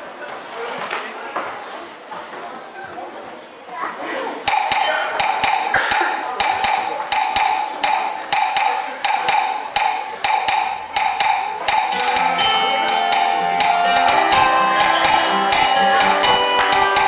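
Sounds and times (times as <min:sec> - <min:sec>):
sharp knocking percussion: 0:04.4 - 0:17.0
band holding notes: 0:04.5 - 0:17.0.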